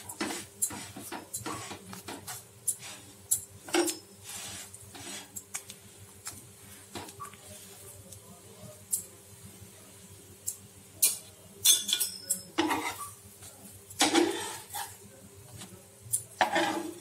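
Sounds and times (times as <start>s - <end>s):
metal spatula scraping on griddle: 0.0s - 5.4s, 11.0s - 13.2s, 14.0s - 15.0s, 16.4s - 17.0s.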